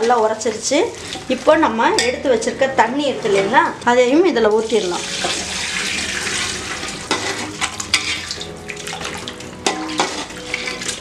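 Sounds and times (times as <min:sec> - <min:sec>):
liquid pouring into pot: 0:04.9 - 0:11.0
ladle stirring and clicking on pot: 0:07.1 - 0:11.0.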